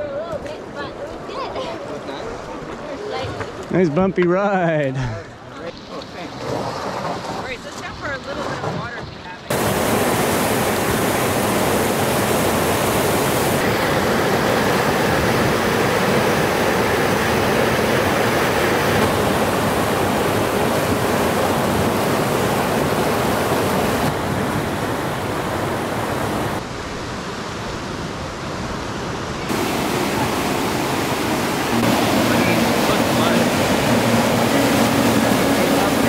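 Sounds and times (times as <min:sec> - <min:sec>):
river rapids rushing: 0:09.5 - 0:27.6, 0:28.4 - 0:36.0.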